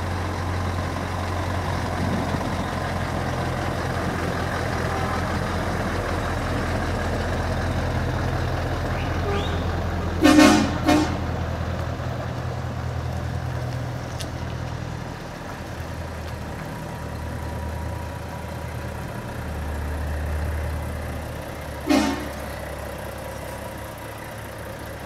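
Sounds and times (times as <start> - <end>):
truck engines running: 0.0 - 25.0
truck horn toot: 4.8 - 5.5, 8.9 - 11.3, 21.8 - 22.6.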